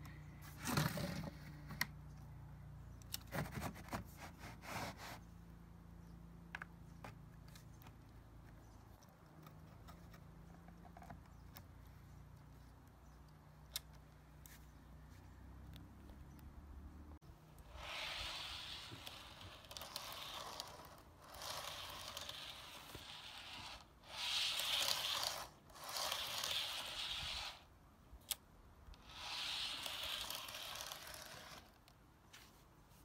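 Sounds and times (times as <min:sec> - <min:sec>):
model train wheels rolling on rails: 0:17.6 - 0:27.7, 0:29.0 - 0:31.8.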